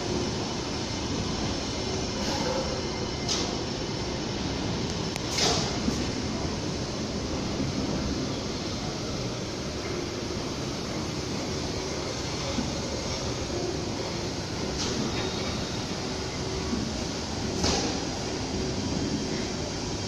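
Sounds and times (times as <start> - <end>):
train wheels rumbling on rail: 0.0 - 20.0.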